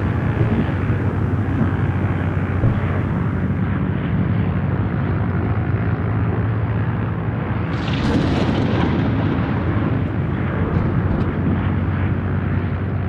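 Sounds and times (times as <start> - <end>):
low hum: 0.0 - 13.0
rushing airflow: 7.2 - 13.0.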